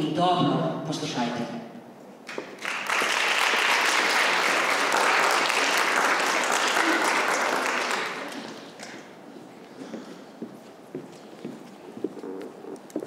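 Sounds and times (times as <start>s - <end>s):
audience applauding: 2.3s - 9.1s.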